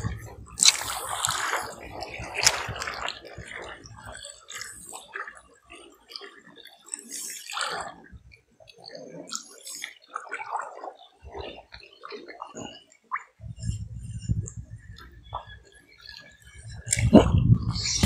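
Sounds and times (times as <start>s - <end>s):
waves lapping on rocks: 0.0s - 8.1s.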